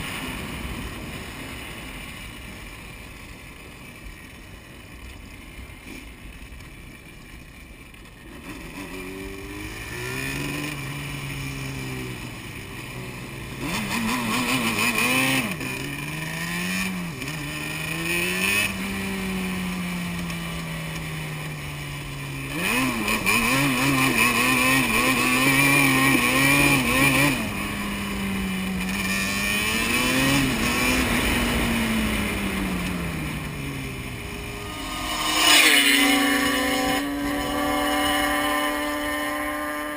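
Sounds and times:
two-stroke engine revving: 8.2 - 39.9.

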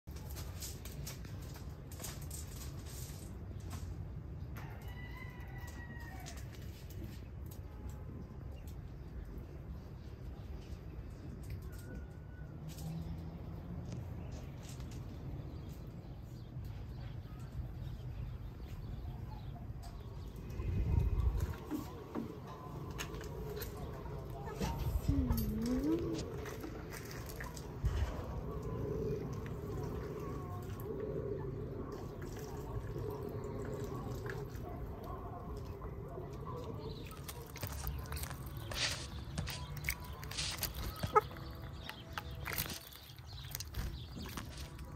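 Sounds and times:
steady low rumble: 13.2 - 44.9.

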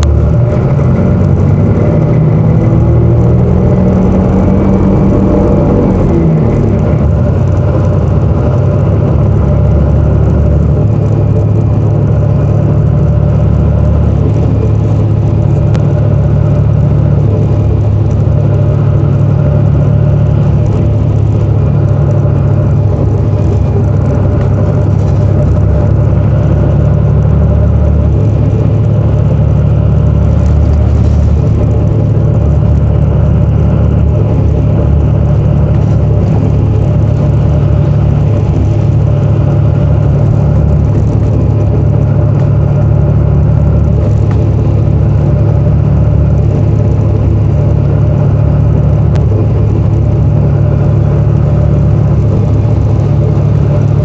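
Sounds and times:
bus engine and road noise: 0.0 - 54.0.

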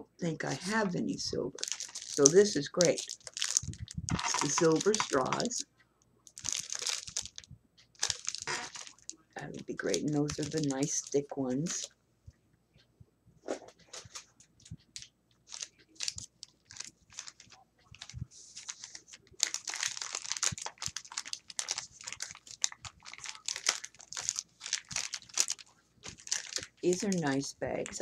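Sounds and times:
paper bag crinkling: 1.5 - 5.6, 6.3 - 7.4, 8.0 - 11.9, 15.5 - 28.0.

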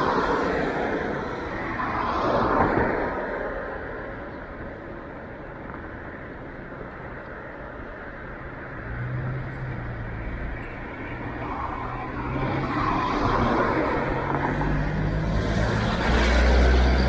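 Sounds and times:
road noise: 0.0 - 17.0
vehicle passing close: 8.9 - 17.0.

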